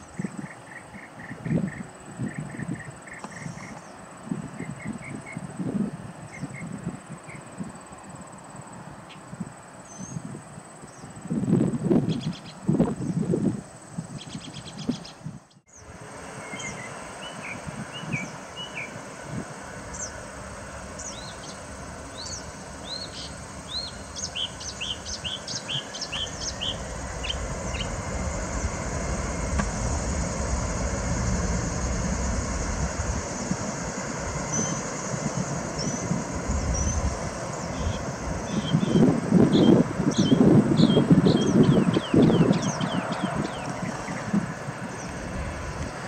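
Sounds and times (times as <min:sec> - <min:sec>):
distant jet engines rumbling: 0:00.0 - 0:46.0
small bird chirping rapidly: 0:21.0 - 0:28.0.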